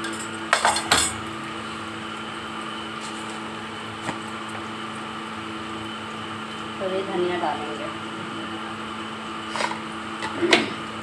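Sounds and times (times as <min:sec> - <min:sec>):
steel dishes clattering: 0:00.0 - 0:01.2
steady mechanical hum: 0:00.0 - 0:11.0.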